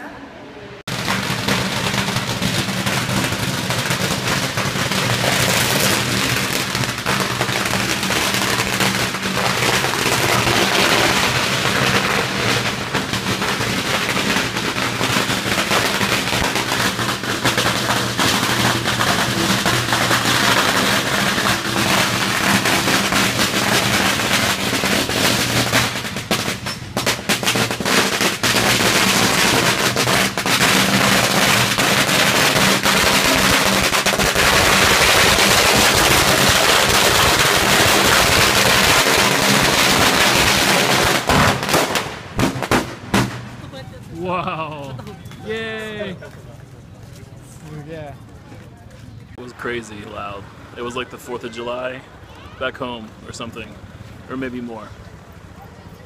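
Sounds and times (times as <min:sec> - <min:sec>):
firecrackers crackling: 0:00.8 - 0:56.0.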